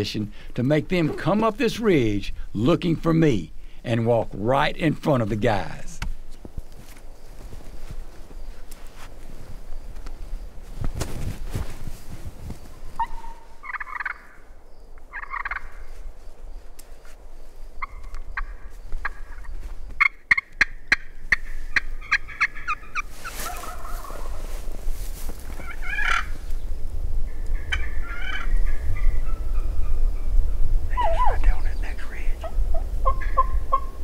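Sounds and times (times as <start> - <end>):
box call hen calls: 13.0 - 14.4, 20.0 - 24.4, 30.9 - 34.0
turkeys gobbling: 13.0 - 14.4, 15.1 - 15.7, 20.0 - 24.6, 25.6 - 26.3, 27.6 - 30.0, 30.9 - 31.6, 32.4 - 34.0.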